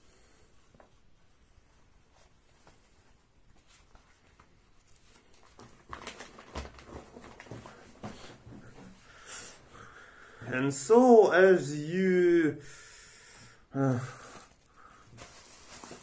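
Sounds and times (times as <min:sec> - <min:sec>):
plastic folder and papers rustling: 0:02.3 - 0:09.1, 0:14.2 - 0:16.0.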